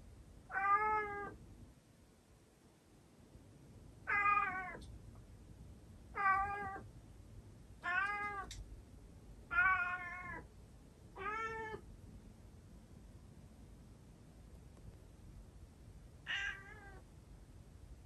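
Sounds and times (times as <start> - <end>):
cat meowing: 0.5 - 1.4, 4.1 - 4.8, 6.2 - 6.8, 7.8 - 8.5, 9.5 - 10.5, 11.2 - 11.8, 16.3 - 17.0.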